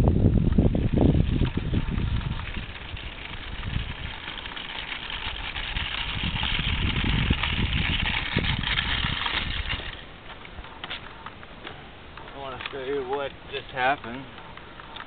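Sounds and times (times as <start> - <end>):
wind on microphone: 0.0 - 10.8
model plane motor whirring: 0.5 - 10.0.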